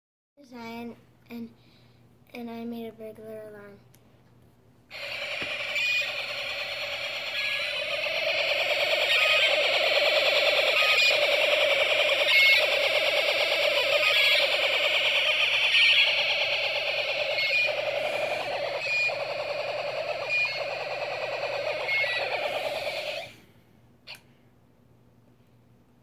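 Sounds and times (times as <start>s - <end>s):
buzzy electronic alarm tone: 4.9s - 23.4s.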